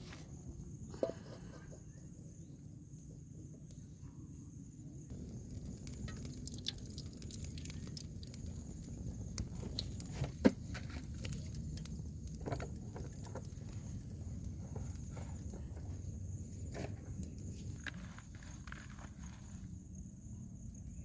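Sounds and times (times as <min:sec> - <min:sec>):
wood fire crackling and popping: 0:05.1 - 0:19.2.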